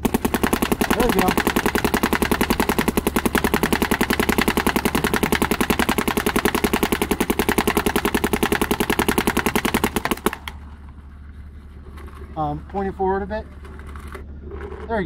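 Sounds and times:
paintball marker rapid firing: 0.0s - 10.6s.

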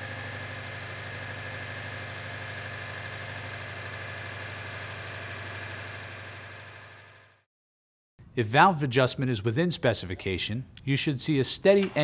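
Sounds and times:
engine idling: 0.0s - 7.4s.

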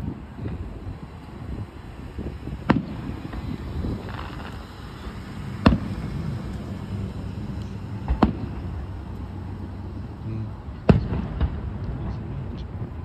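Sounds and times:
firework booms: 0.0s - 4.8s, 5.4s - 6.4s, 8.0s - 9.0s, 10.7s - 13.0s.

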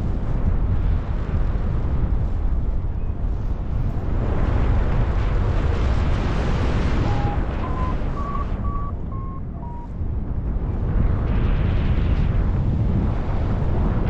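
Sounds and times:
wind buffeting microphone: 0.0s - 14.0s
variometer beeps rising in pitch: 7.0s - 9.9s.

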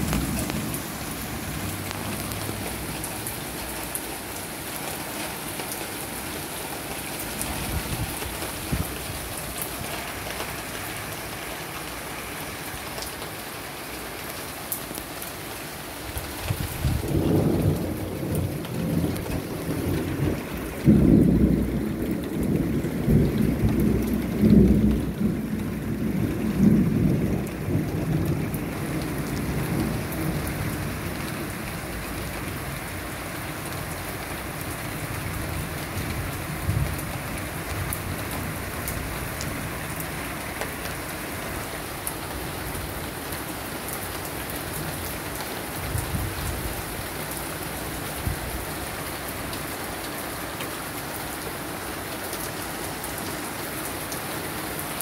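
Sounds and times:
thunder rumbling: 0.0s - 3.5s, 16.5s - 31.8s
steady rain: 0.0s - 55.0s.

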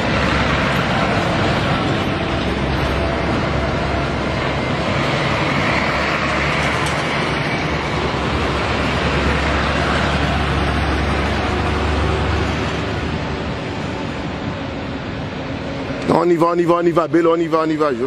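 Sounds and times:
truck engine rumble: 0.0s - 18.0s
tyre and road noise: 0.0s - 18.0s.

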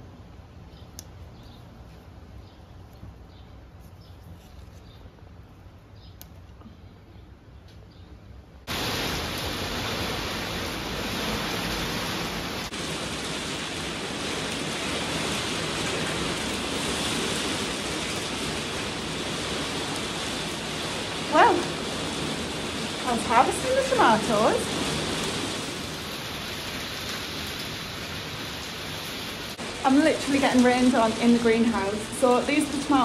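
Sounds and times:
heavy rain pouring: 8.6s - 33.0s.

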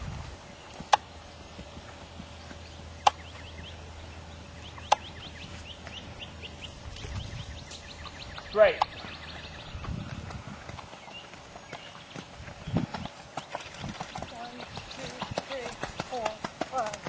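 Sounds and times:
bird chirping: 0.5s - 17.0s
sharp clicks: 4.8s - 5.1s
horse hoofbeats on sand: 8.2s - 17.0s.

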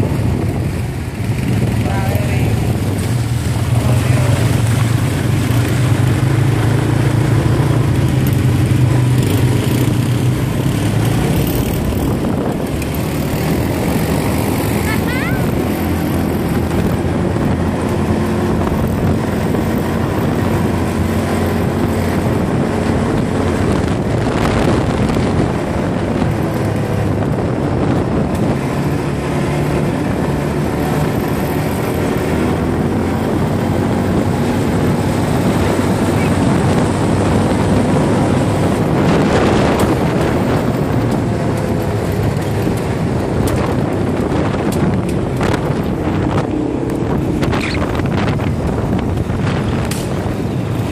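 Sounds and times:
atv engine running: 0.0s - 50.9s
wind buffeting microphone: 0.0s - 50.9s.

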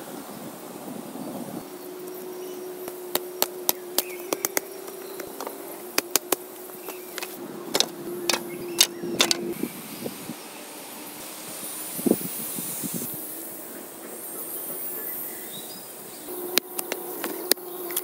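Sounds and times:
faint hum: 0.0s - 18.0s
hand tool striking wood: 5.4s - 9.4s.

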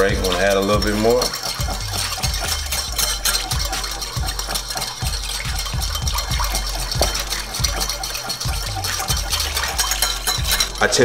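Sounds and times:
whisk clicking and scraping bowl: 0.0s - 11.0s.

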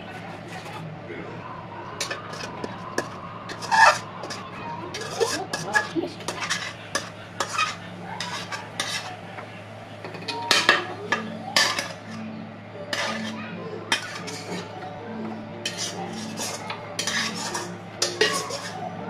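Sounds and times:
metal spatula scraping a pan: 2.0s - 9.2s, 10.3s - 14.8s, 15.6s - 19.0s.

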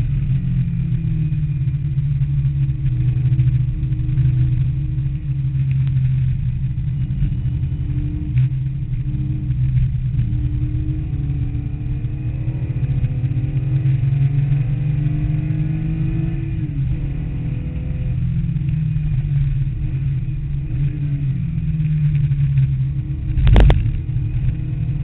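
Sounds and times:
car engine revving: 0.0s - 25.0s.

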